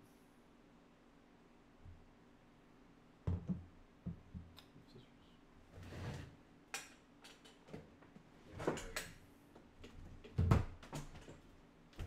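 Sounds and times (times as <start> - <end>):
knocks and bumps at a desk: 3.2 - 4.5, 10.1 - 11.3.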